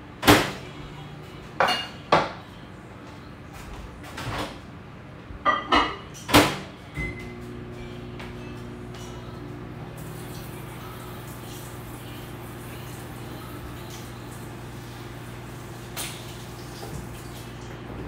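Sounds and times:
dishes clinking: 0:01.6 - 0:02.5, 0:05.4 - 0:06.3
steady low hum: 0:02.4 - 0:15.9.

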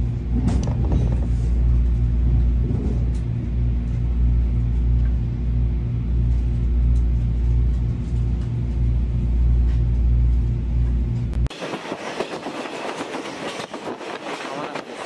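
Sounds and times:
diesel locomotive engine rumble: 0:00.0 - 0:15.0
train wheels on rail: 0:11.5 - 0:15.0.

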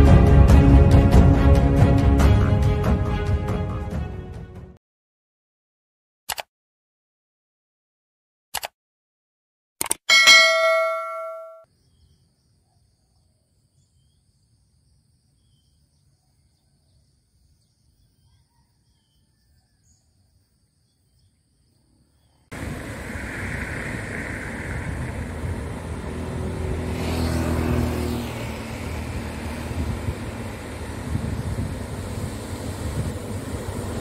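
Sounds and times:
short clicks: 0:06.3 - 0:06.5, 0:08.5 - 0:08.8, 0:09.8 - 0:10.2
bright bell ding: 0:10.1 - 0:11.7
steady rushing noise: 0:22.5 - 0:27.4.

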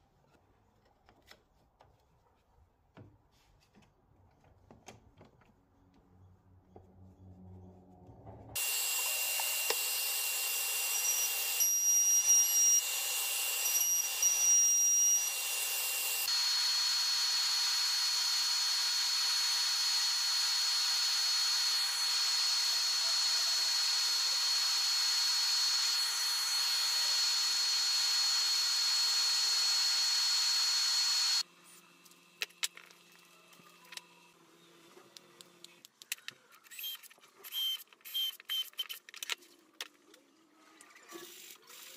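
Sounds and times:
disc sander motor whining: 0:08.6 - 0:31.4.

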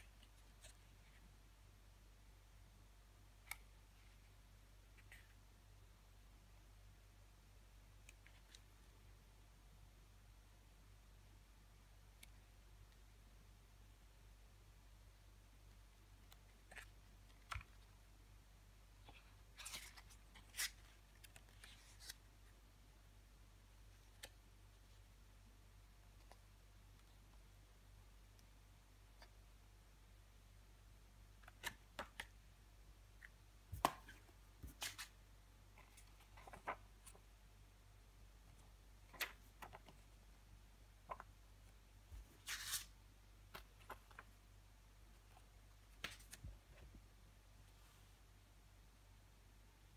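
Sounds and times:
paper pages turning: 0:19.0 - 0:22.3, 0:33.8 - 0:37.3, 0:42.1 - 0:44.4, 0:46.0 - 0:46.5
paper rustle: 0:19.1 - 0:22.3, 0:42.2 - 0:42.9.

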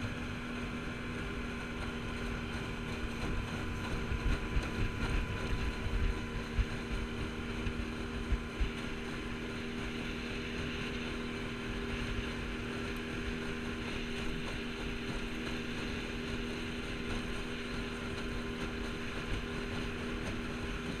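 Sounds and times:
outboard motor running: 0:00.0 - 0:21.0
water rushing along hull: 0:00.0 - 0:21.0
wind buffeting microphone: 0:00.0 - 0:21.0.

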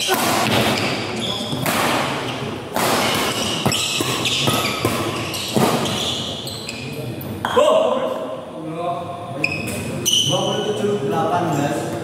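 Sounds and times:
rackets striking shuttlecock: 0:00.0 - 0:06.0
shoes squeaking on court floor: 0:00.5 - 0:07.2, 0:09.4 - 0:10.8.

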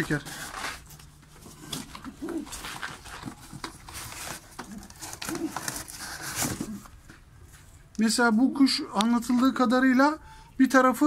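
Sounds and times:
cardboard box rustling and scraping: 0:00.0 - 0:07.1.

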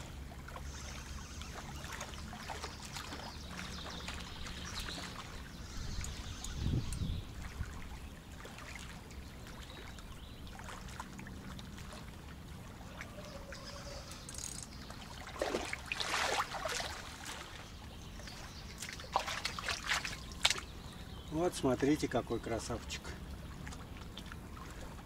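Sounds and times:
water splashing and trickling: 0:00.0 - 0:25.0
loud splash: 0:15.2 - 0:17.6, 0:19.0 - 0:20.6.

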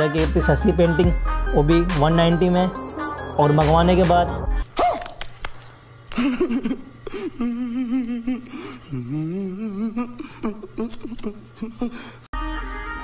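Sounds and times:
man moaning: 0:07.2 - 0:12.2.

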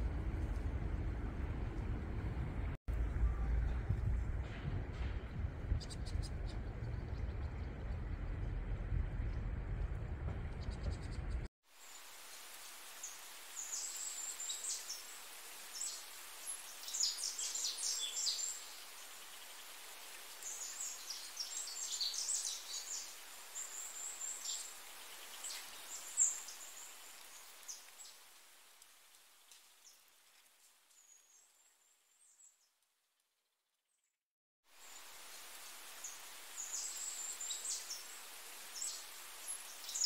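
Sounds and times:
steady background hiss: 0:11.7 - 0:30.0, 0:34.8 - 0:40.0
small birds chirping: 0:13.0 - 0:28.2, 0:34.8 - 0:40.0.

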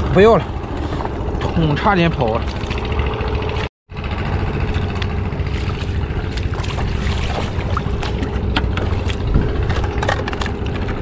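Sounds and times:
engine running: 0:00.0 - 0:11.0.

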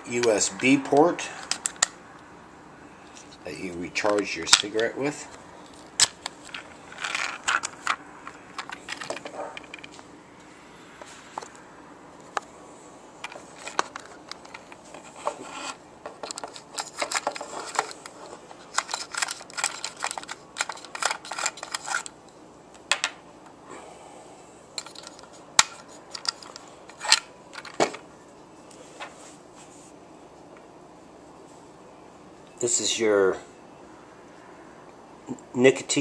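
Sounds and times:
plastic case clicks and rattles: 0:06.0 - 0:10.0, 0:18.7 - 0:22.1.

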